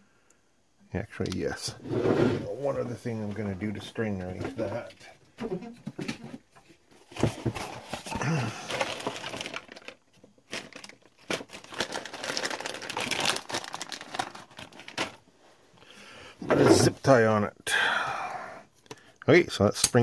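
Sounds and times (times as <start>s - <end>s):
hands handling crinkly plastic: 7.1s - 15.3s.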